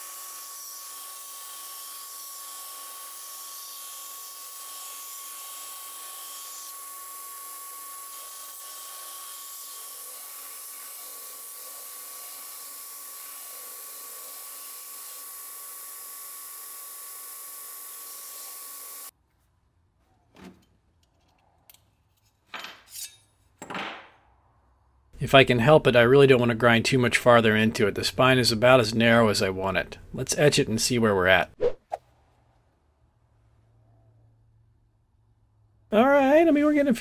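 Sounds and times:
belt grinder grinding steel blade: 0.0 - 19.1.

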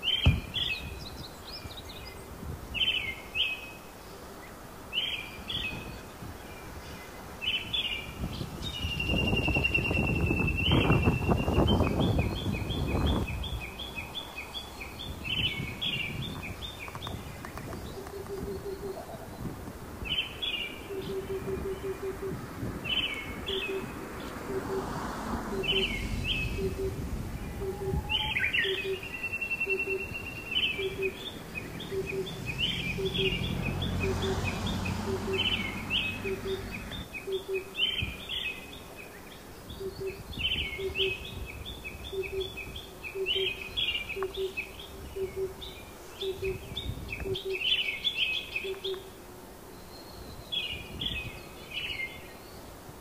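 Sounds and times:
birds singing and chirping: 0.0 - 52.9
low rumble: 23.9 - 28.9.

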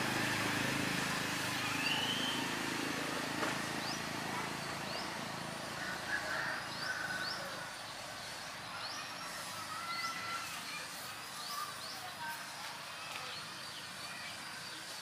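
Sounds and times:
vehicle engine running: 0.0 - 9.7.

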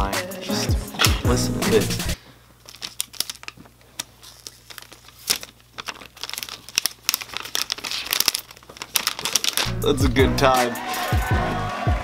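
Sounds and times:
plastic wrap crinkling and tearing: 2.6 - 9.9.

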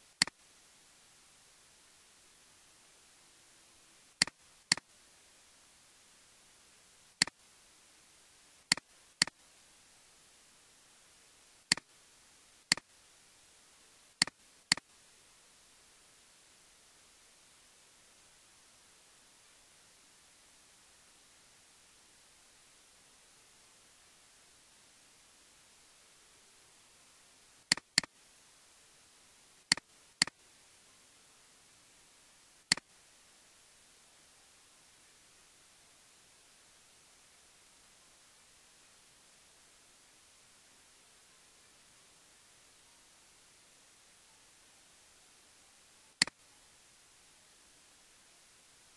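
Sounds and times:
faint steady hiss: 0.0 - 48.9
computer mouse clicking: 4.2 - 4.9, 8.7 - 9.4, 11.7 - 11.9, 12.7 - 12.9, 14.2 - 14.9, 27.7 - 28.1, 29.7 - 30.4
computer mouse button clicks: 27.7 - 28.1.

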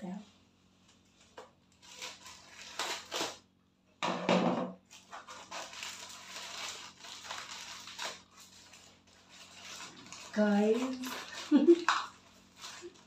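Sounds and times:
scissors cutting plastic: 1.4 - 3.4, 4.9 - 13.0
plastic mailer crinkling: 1.7 - 3.4, 4.9 - 13.0.

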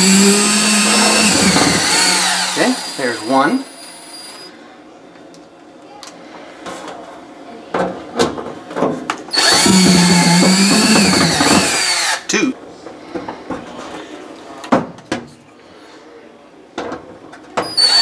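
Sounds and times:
drill driving screw into metal: 0.0 - 3.4, 9.3 - 12.3, 17.7 - 18.0.

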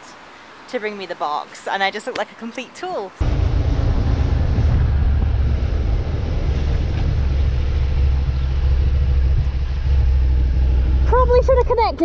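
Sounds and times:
motorcycle engine droning: 3.2 - 11.6
wind rumble on microphone: 3.2 - 12.0.

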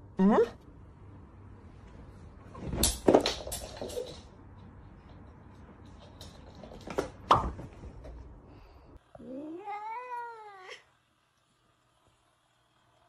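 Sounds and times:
cat meowing: 9.2 - 10.8.

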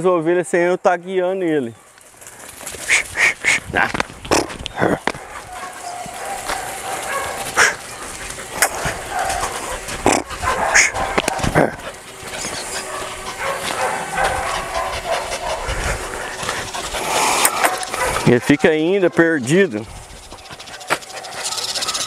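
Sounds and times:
dog barking: 5.2 - 7.8, 8.6 - 11.7, 12.8 - 15.9, 17.3 - 19.2, 20.7 - 22.0.

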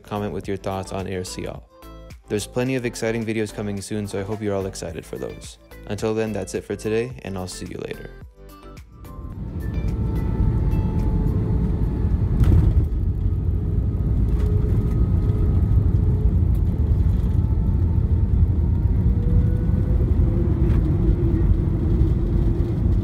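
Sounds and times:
faint jet engine whine: 9.1 - 23.0
rumble of wheels and engines: 9.1 - 23.0.

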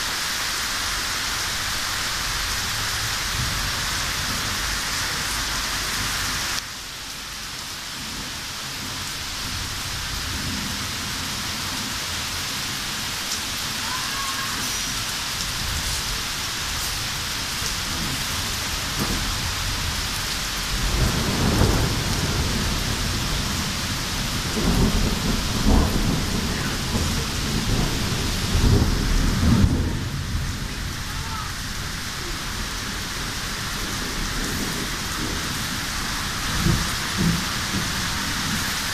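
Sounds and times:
steady rain hissing: 0.0 - 38.9
rolling thunder: 2.3 - 6.3, 13.7 - 38.9.

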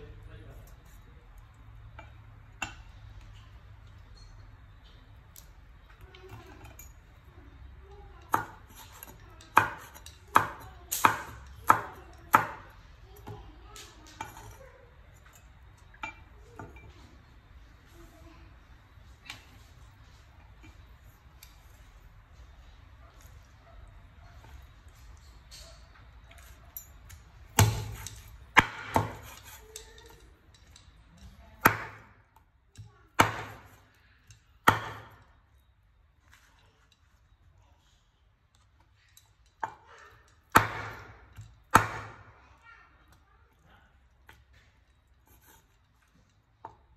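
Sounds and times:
cleaver chopping on wooden board: 8.3 - 12.7, 27.6 - 29.6, 31.6 - 32.1, 33.2 - 33.8, 34.6 - 35.2, 40.5 - 42.3.

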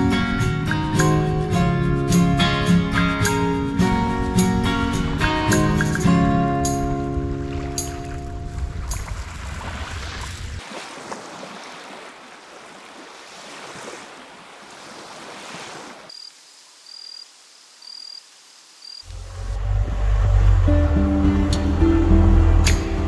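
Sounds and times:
background music: 0.0 - 9.1, 19.2 - 23.0
small waves washing on beach: 7.1 - 18.8.

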